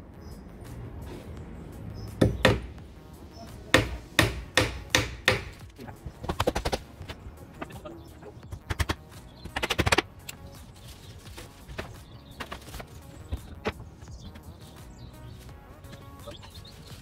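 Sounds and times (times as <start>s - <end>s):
hammer driving nails into wood: 2.2s - 2.7s, 3.8s - 5.7s.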